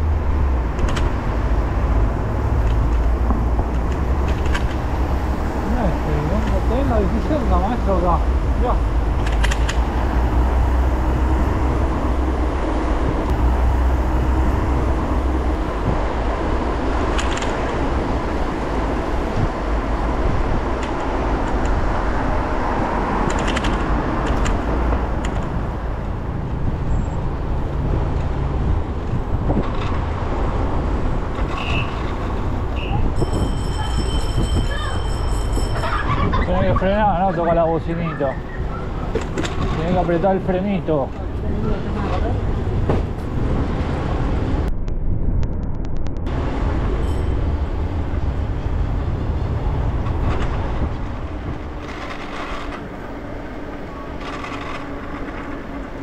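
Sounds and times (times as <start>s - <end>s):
bicycle road noise: 0.0s - 56.0s
passing traffic: 0.0s - 56.0s
wind rumble on microphone: 0.0s - 56.0s
bicycle bell ringing: 33.0s - 36.5s, 47.0s - 48.2s.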